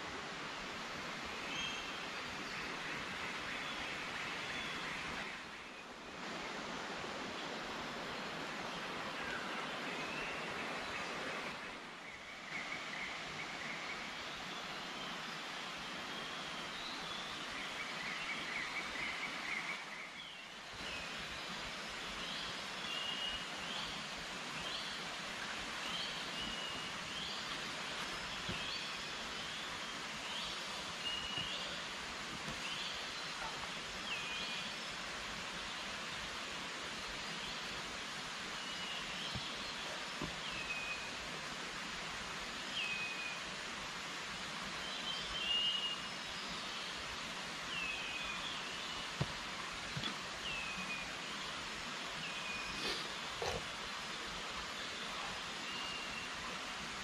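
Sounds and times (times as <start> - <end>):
steady background hiss: 0.0 - 57.0.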